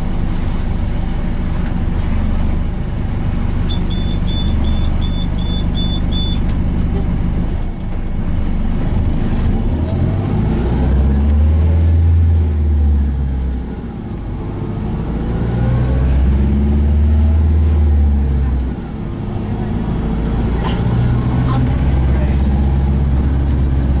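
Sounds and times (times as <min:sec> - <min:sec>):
bus drive rumble: 0:00.0 - 0:24.0
high beeps: 0:03.7 - 0:06.4.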